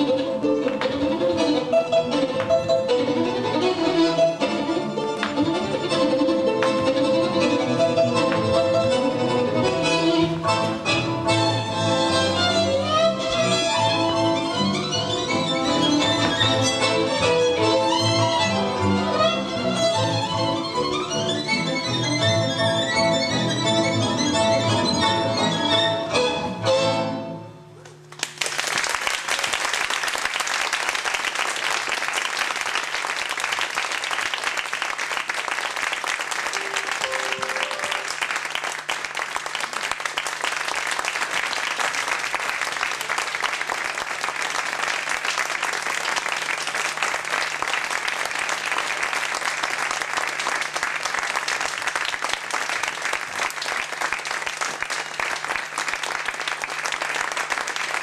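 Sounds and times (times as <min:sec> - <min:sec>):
violin music: 0:00.0 - 0:27.5, 0:36.5 - 0:38.5
audience applauding: 0:28.1 - 0:58.0.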